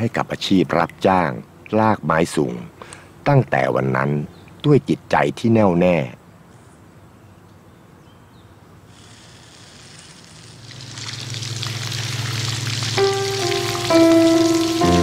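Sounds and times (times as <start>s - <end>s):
water splashing on head: 9.5s - 15.0s
sustained musical notes: 11.2s - 15.0s.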